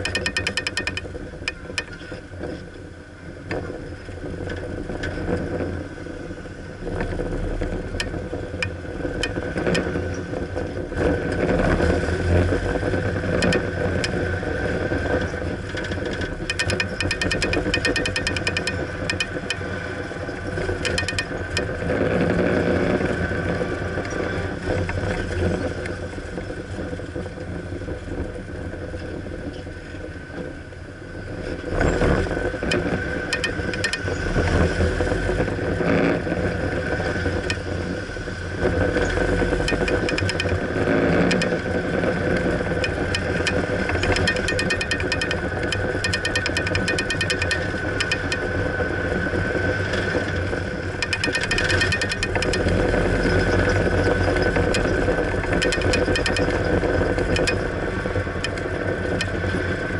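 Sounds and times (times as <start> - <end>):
faint ticking: 0.0 - 2.0, 13.4 - 14.2, 16.4 - 19.8, 20.8 - 21.9, 32.6 - 34.2, 39.6 - 41.8, 42.4 - 48.5, 51.0 - 59.4
car engine and road noise: 0.0 - 59.9.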